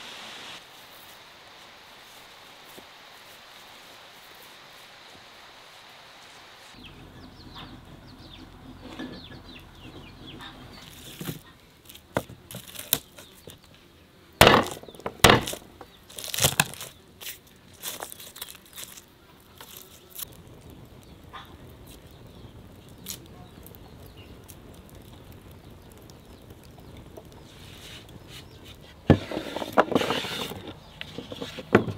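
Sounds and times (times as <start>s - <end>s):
garlic cloves cracking: 11.9s - 13.4s, 14.4s - 20.4s, 22.8s - 27.0s.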